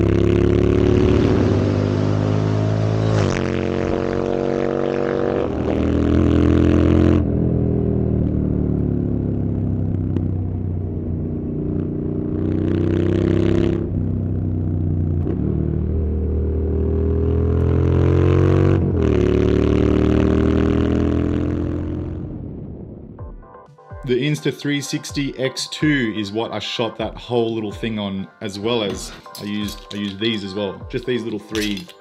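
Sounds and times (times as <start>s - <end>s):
motorcycle engine revving: 0.0s - 22.9s.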